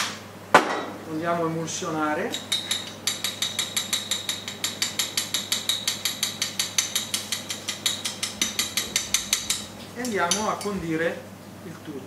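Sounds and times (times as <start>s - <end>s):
spoon clicking against glass bowl: 2.3s - 10.8s.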